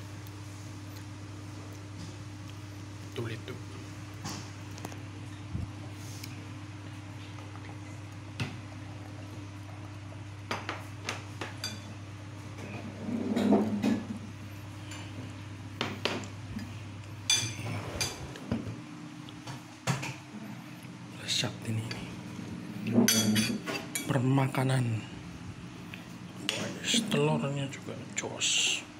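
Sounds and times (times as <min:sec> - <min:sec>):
steady low hum: 0:00.0 - 0:28.9
spoons clinking on plates: 0:17.3 - 0:18.2, 0:23.0 - 0:24.1.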